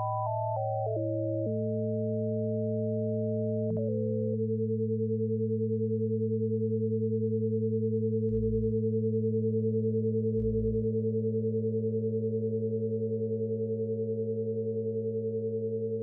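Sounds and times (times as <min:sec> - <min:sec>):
electronic sine tone drone: 0:00.0 - 0:16.0.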